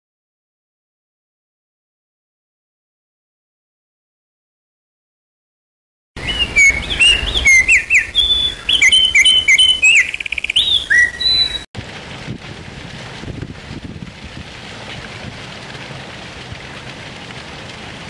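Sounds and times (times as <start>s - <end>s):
songbirds chirping and whistling: 6.2s - 11.7s
steady outdoor hiss: 6.2s - 18.0s.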